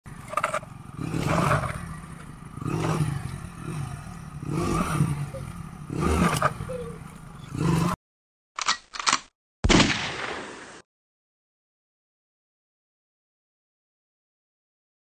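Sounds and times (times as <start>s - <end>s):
motorcycle engine revving: 0.1s - 8.0s.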